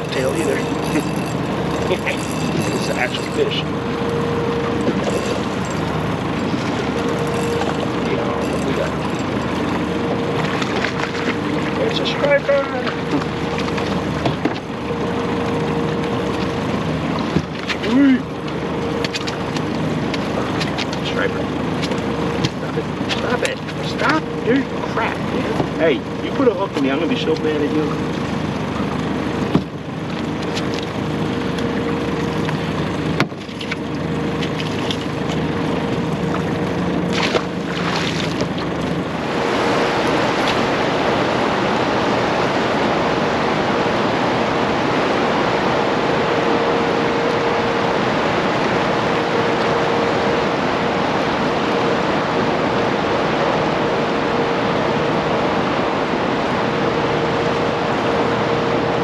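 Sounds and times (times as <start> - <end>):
constant low hum: 0.0 - 59.0
turbulent water rushing: 0.0 - 59.0.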